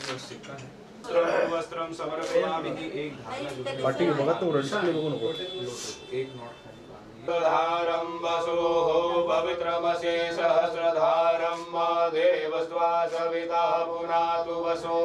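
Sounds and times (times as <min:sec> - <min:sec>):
mantra chanting: 0:07.2 - 0:15.0.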